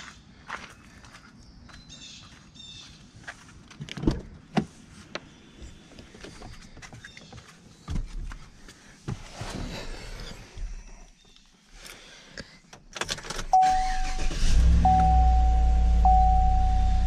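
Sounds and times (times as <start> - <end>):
footsteps on pavement: 0.0 - 4.0.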